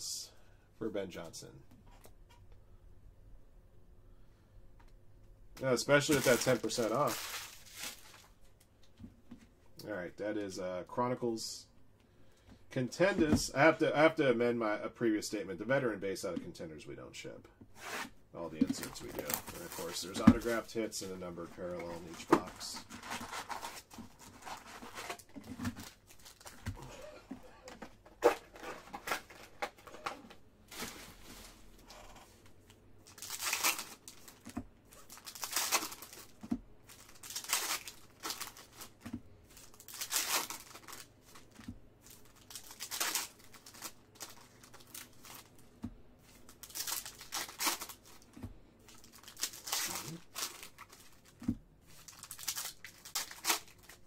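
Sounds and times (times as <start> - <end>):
card pack wrappers ripping: 5.9 - 8.3, 18.7 - 20.7, 33.0 - 39.0, 39.6 - 41.5, 42.1 - 45.6, 46.4 - 48.3, 48.9 - 54.0.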